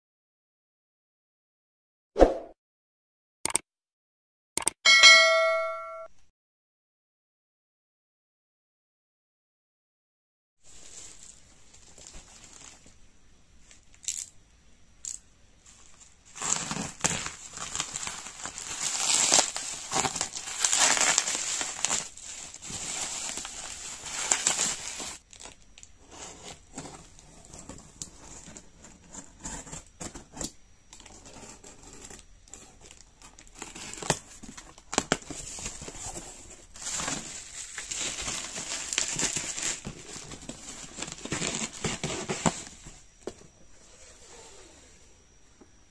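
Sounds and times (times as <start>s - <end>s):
sharp clicks: 4.6s - 4.8s
bubble wrap crinkling: 10.7s - 14.2s, 15.6s - 29.9s, 31.0s - 43.0s.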